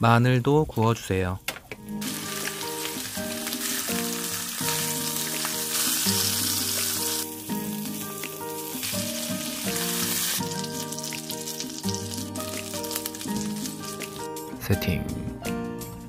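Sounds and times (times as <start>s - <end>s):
background music: 0.0s - 16.0s
fish sizzling in a frying pan: 1.9s - 14.4s.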